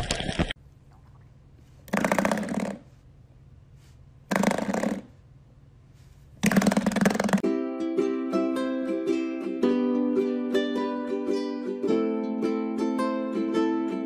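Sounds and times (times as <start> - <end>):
ukulele music: 7.4 - 14.0.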